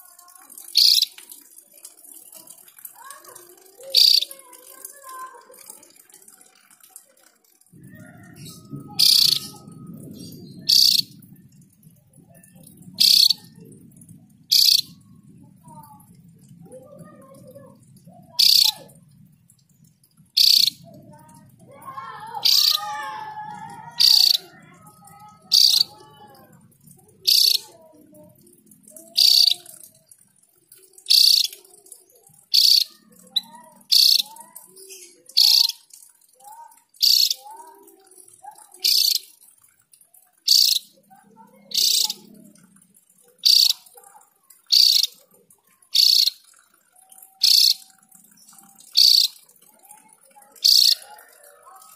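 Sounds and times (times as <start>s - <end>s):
soft bird twittering: 0.7s - 1.2s, 3.8s - 4.4s, 7.8s - 11.6s, 12.3s - 16.0s, 16.6s - 18.9s, 20.3s - 20.9s, 22.4s - 22.9s, 24.0s - 24.5s, 25.1s - 26.0s, 27.2s - 27.6s, 29.2s - 29.6s, 31.0s - 31.6s, 32.5s - 35.8s, 37.0s - 37.5s, 38.8s - 39.3s, 40.5s - 41.0s, 41.6s - 42.5s, 43.4s - 43.9s, 44.7s - 45.2s, 45.9s - 46.4s, 47.4s - 49.5s, 50.6s - 51.0s.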